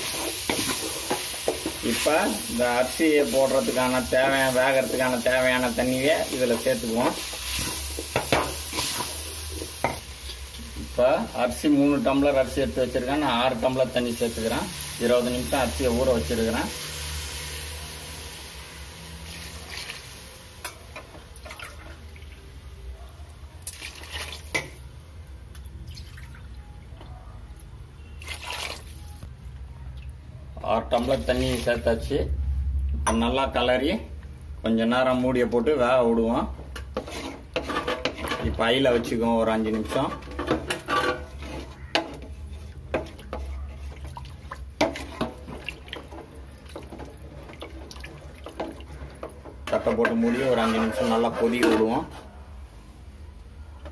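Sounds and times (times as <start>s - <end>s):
liquid sloshing in a pot: 21.4s - 22.4s, 23.7s - 24.7s, 25.8s - 26.6s, 28.1s - 29.1s, 39.6s - 52.1s
water pouring into metal pot: 23.6s - 24.5s, 45.2s - 49.1s
water splashing and dripping: 23.6s - 24.5s, 25.5s - 26.6s, 28.2s - 29.0s, 45.6s - 48.8s.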